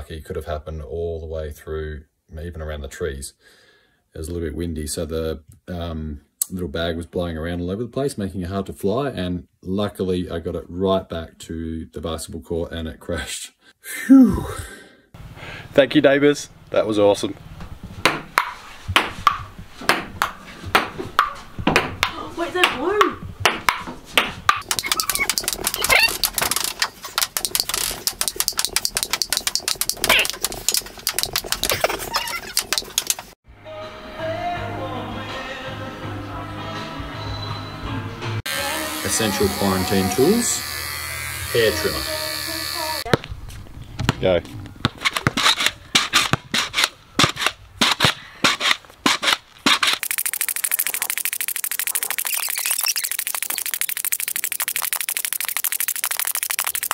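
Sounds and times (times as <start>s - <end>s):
pogo stick clacking on concrete: 22.0s - 33.4s
table tennis ball clicking: 24.5s - 33.3s, 50.0s - 56.9s.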